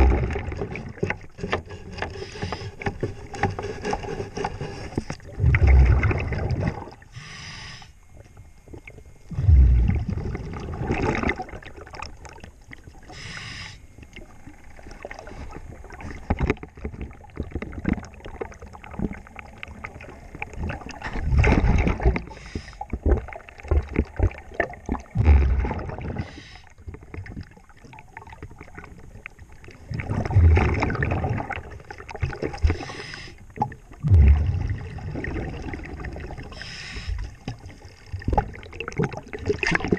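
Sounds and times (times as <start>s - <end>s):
exhaled bubbles rumbling: 0.0s - 4.0s, 4.7s - 7.2s, 8.0s - 13.2s, 14.0s - 39.9s
regulator inhalation hiss: 7.2s - 8.0s, 13.1s - 13.8s, 26.2s - 26.7s, 32.8s - 33.4s, 36.5s - 37.3s.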